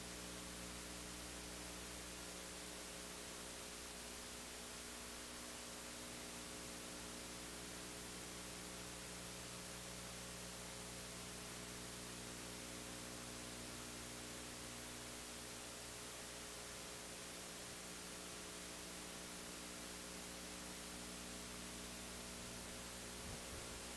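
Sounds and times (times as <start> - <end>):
low mains hum: 0.0 - 23.9
steady hiss: 18.8 - 23.9.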